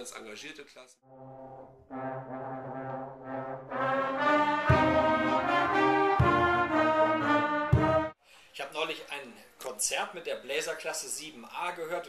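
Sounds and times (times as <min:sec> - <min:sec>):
brass band playing: 0:01.1 - 0:08.2.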